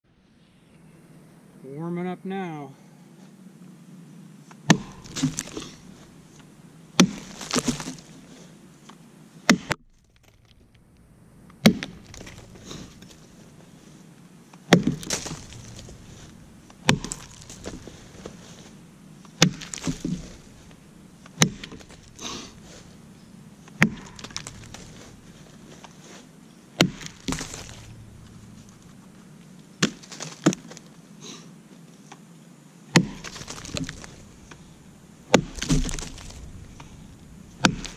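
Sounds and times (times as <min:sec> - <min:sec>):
axe chopping dry log: 0:04.6 - 0:05.9, 0:07.0 - 0:08.1, 0:09.5 - 0:10.6, 0:11.6 - 0:13.2, 0:14.7 - 0:22.9, 0:23.6 - 0:25.9, 0:26.8 - 0:28.8, 0:29.8 - 0:30.8, 0:32.9 - 0:34.7, 0:35.3 - 0:36.9, 0:37.6 - 0:37.9.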